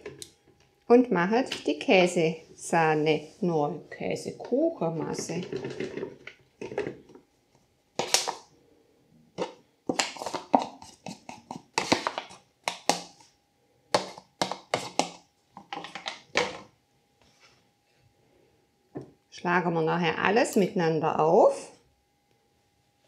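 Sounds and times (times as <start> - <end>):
metal utensil scraping packet: 9.4 - 12.4.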